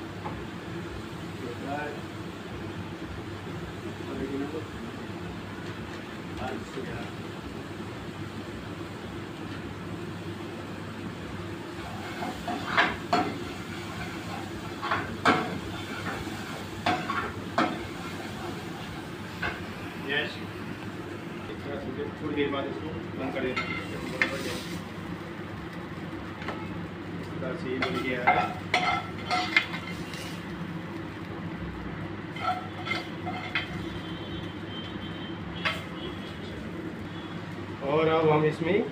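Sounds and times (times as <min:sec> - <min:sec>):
kitchen background hum: 0:00.0 - 0:38.9
utensil scraping metal frying pan: 0:11.8 - 0:19.6, 0:23.5 - 0:24.8, 0:27.8 - 0:30.4, 0:32.3 - 0:34.0, 0:35.6 - 0:36.5
ladle scraping frying pan: 0:32.3 - 0:33.9.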